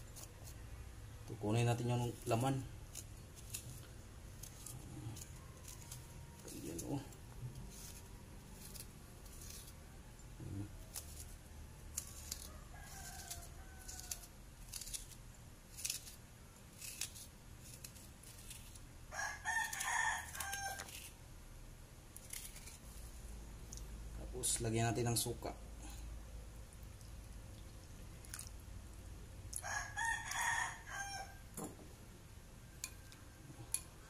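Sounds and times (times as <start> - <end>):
rooster crowing: 5.1 - 7.1, 11.6 - 14.4, 19.1 - 21.1, 29.6 - 31.5.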